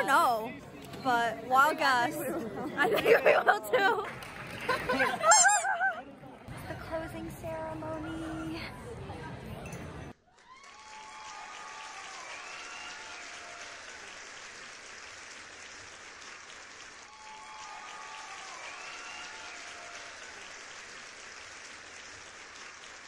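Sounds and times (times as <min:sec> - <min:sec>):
crowd applauding: 0:01.8 - 0:06.4, 0:10.3 - 0:23.0.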